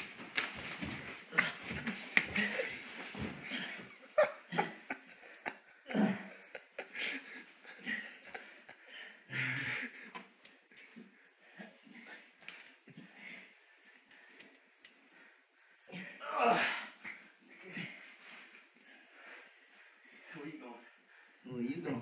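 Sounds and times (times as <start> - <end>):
heavy strained breathing: 1.1 - 21.5
men grunting: 5.9 - 7.2, 15.9 - 18.0.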